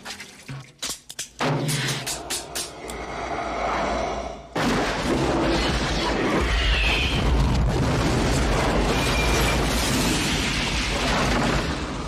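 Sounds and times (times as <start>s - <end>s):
explosion: 4.5s - 12.0s.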